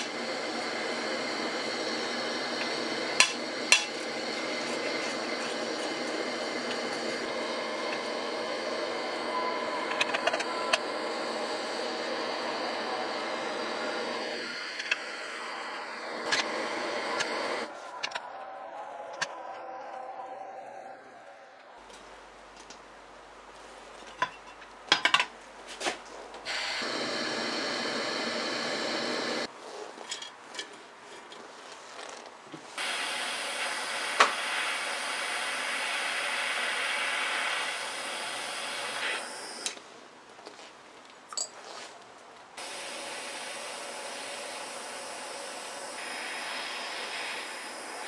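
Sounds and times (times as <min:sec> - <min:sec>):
torch lighter jet hiss: 0:00.0 - 0:17.7, 0:26.4 - 0:29.5, 0:32.7 - 0:39.8, 0:42.6 - 0:48.0.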